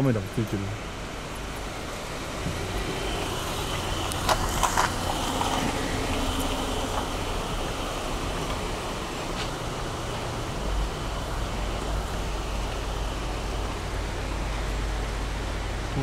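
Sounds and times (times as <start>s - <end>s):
outdoor rumble and hiss: 0.0s - 16.0s.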